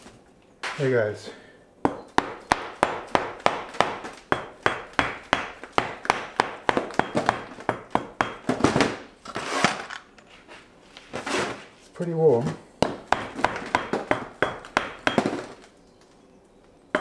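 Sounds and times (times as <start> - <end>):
hammer knocking on sand mould: 1.9 - 8.6, 12.8 - 15.4.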